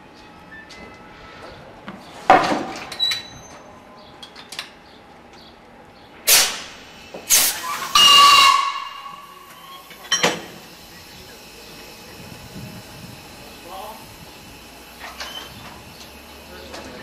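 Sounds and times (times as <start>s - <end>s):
sharp air blasts: 6.3s - 10.8s
compressed air hissing: 6.3s - 17.0s.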